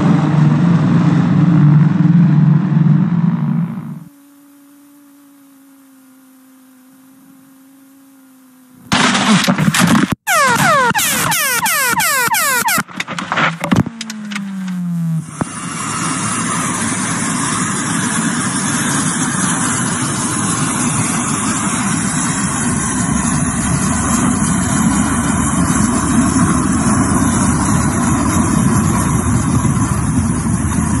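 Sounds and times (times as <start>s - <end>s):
jet engines roaring: 9.0s - 31.0s.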